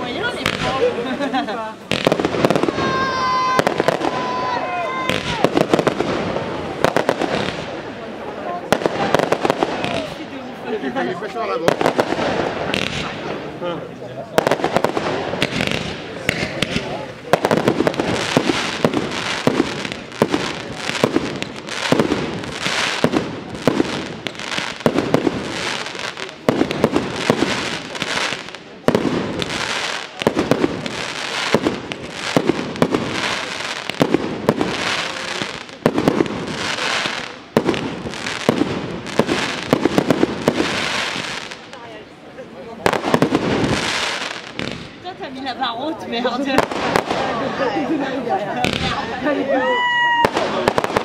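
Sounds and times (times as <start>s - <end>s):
firework crackling hiss: 11.6s - 13.4s, 14.4s - 41.8s, 42.8s - 45.1s.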